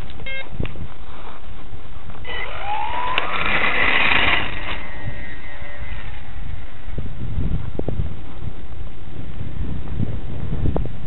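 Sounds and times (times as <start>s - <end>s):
wind buffeting microphone: 0.0s - 11.0s
short beep: 0.2s - 0.5s
electric motor and propeller whine: 2.1s - 9.1s.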